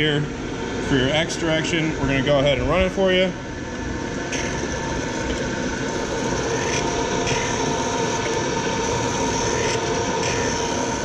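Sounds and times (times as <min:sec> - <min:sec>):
surface grinder whirring: 0:04.3 - 0:11.0.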